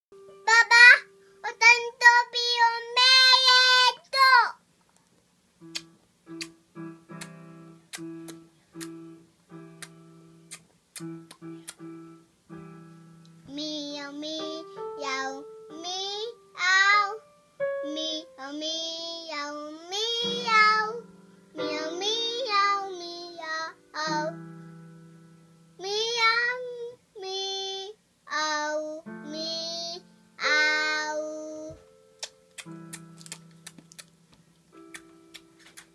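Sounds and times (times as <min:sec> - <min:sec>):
girl singing: 0:00.2 - 0:04.6, 0:13.4 - 0:24.5, 0:25.8 - 0:31.8
instrumental accompaniment: 0:05.6 - 0:18.5, 0:29.0 - 0:35.9.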